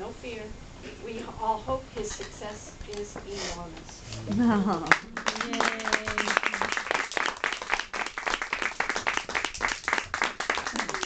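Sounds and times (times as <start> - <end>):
children applauding: 4.8 - 11.0.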